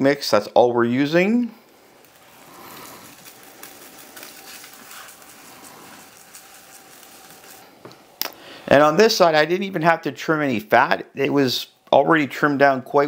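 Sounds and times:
dry rub shaken from shaker: 0:02.2 - 0:07.8.

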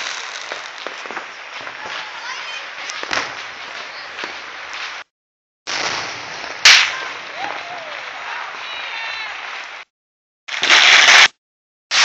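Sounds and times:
fireworks hissing and crackling: 0:00.0 - 0:05.1, 0:05.7 - 0:09.9, 0:10.5 - 0:12.0.

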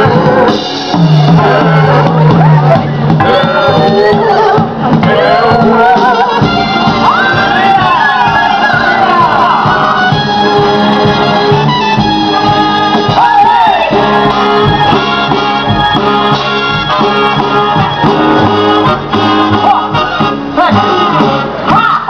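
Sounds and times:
upbeat show-tune music: 0:00.0 - 0:21.7.

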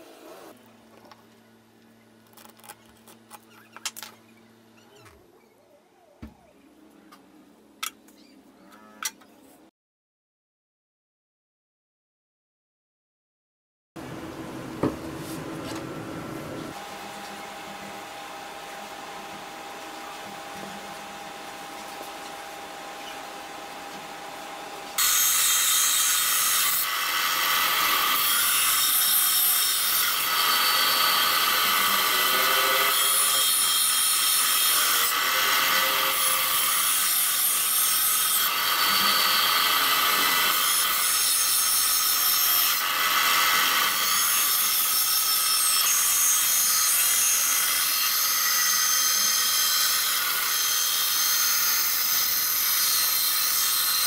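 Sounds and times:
band saw cutting wood: 0:18.1 - 0:54.0.

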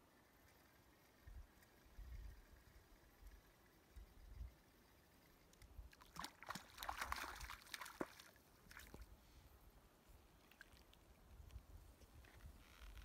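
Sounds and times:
fish splashing in water: 0:06.0 - 0:09.0.

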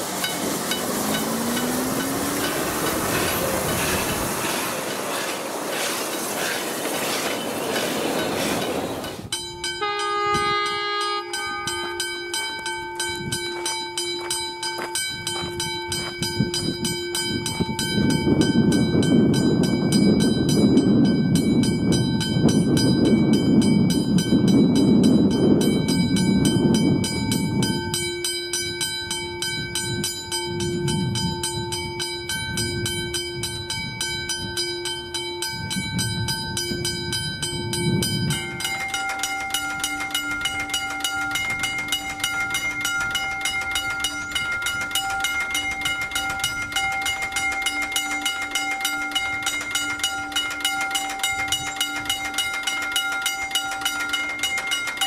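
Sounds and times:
rushing noise: 0:00.0 - 0:09.3
level-crossing bell ringing: 0:07.4 - 0:55.0
higher-pitched crossing bell: 0:08.2 - 0:55.0.

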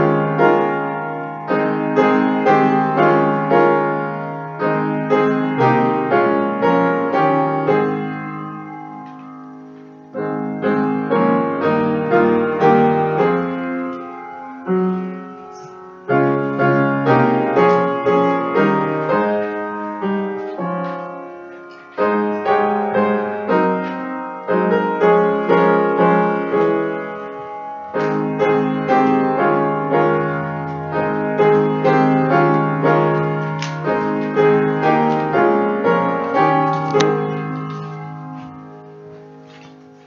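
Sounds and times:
slow piano music: 0:00.0 - 0:40.0.

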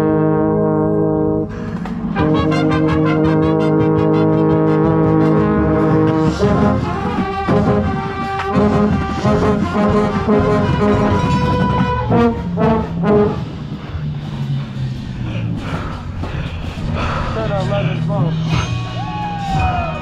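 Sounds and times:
brass band playing: 0:00.0 - 0:14.6.

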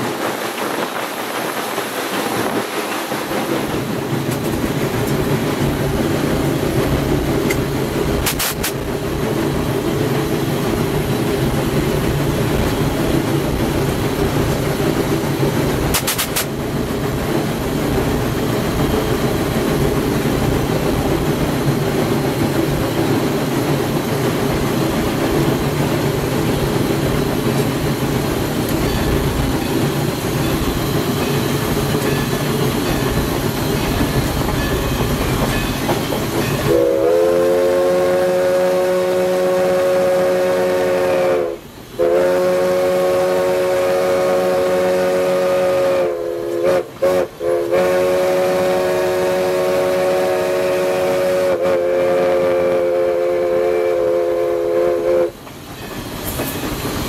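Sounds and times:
steam locomotive running: 0:00.0 - 0:57.0
steam whistle blowing: 0:36.4 - 0:55.4.

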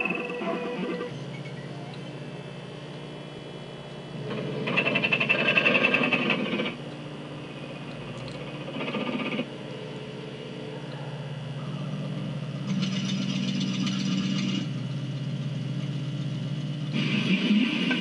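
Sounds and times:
low engine drone: 0:00.0 - 0:18.0
hiss: 0:17.0 - 0:18.0.

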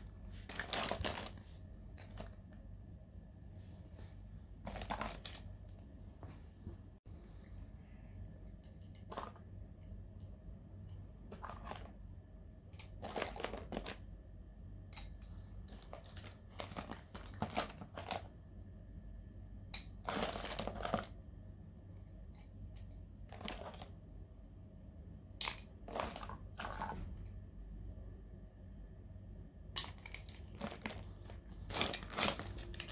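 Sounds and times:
faint low hum: 0:00.0 - 0:32.9
paint tubes crinkling: 0:00.4 - 0:01.4, 0:30.0 - 0:32.9
coloured pencils clicking: 0:29.8 - 0:32.9.

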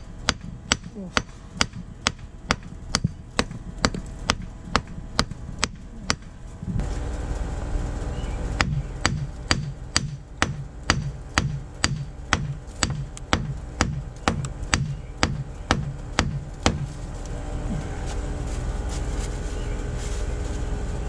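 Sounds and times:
hammer striking concrete block: 0:08.6 - 0:16.8.

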